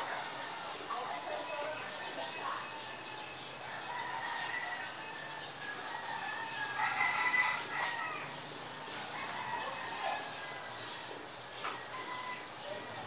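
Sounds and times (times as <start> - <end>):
rooster crowing: 2.4 - 11.0, 11.9 - 13.0.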